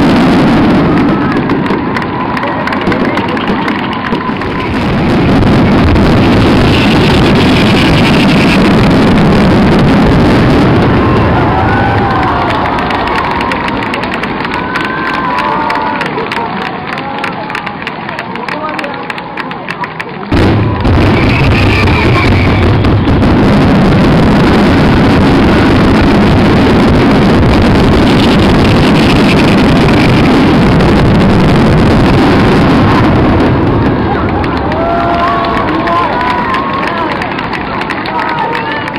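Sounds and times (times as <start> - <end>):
fireworks bursting: 0.0 - 18.0, 19.8 - 38.9.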